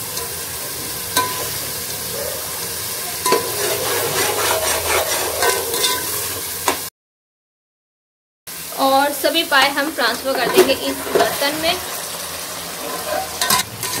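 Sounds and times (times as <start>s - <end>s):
masala sizzling in oil: 0.0s - 6.9s, 8.5s - 14.0s
metal spoon scraping a pot: 3.2s - 6.4s, 10.3s - 11.6s, 12.8s - 14.0s.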